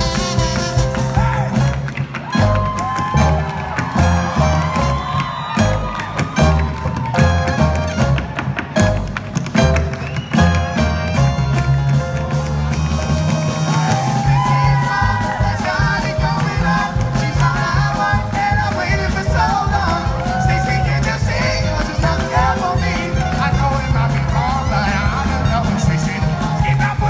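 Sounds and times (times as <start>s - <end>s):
live band with upright bass: 0.0s - 27.0s
person singing: 13.6s - 27.0s.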